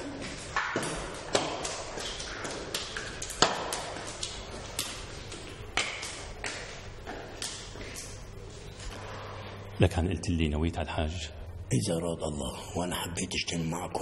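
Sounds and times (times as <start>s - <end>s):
echoing taps and knocks: 0.0s - 7.8s.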